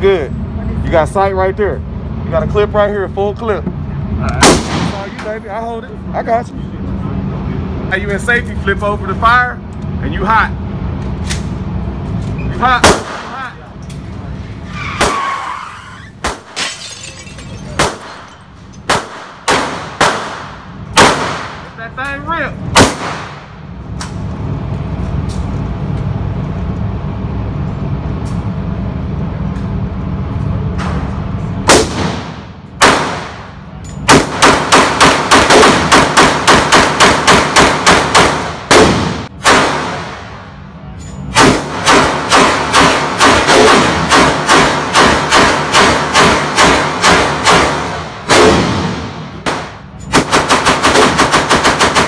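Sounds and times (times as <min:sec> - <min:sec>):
steady low hum: 0:00.0 - 0:14.8, 0:16.0 - 0:52.0
gunshots with short echo: 0:18.9 - 0:21.7.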